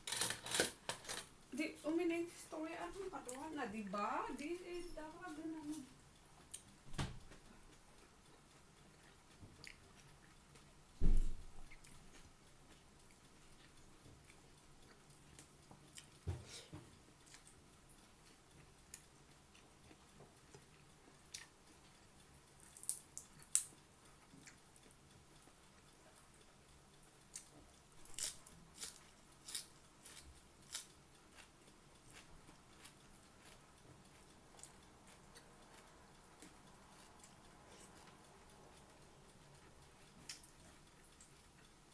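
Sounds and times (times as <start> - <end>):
crunchy chewing: 22.6 - 25.1, 27.2 - 41.7.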